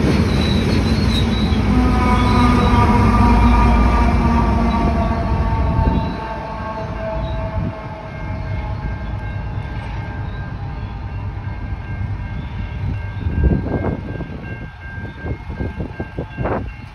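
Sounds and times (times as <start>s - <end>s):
freight train rumbling: 0.0s - 16.9s
low surge: 1.0s - 12.9s.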